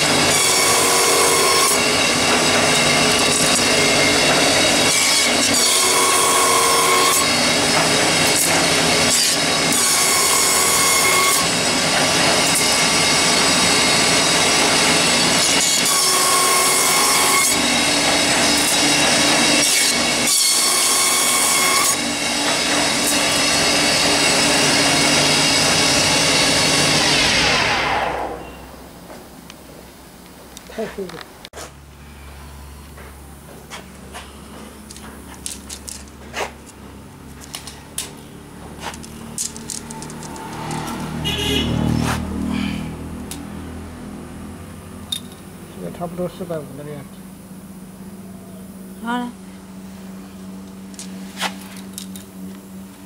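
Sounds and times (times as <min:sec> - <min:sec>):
wood slicing machine running: 0:00.0 - 0:28.4, 0:34.0 - 0:44.6.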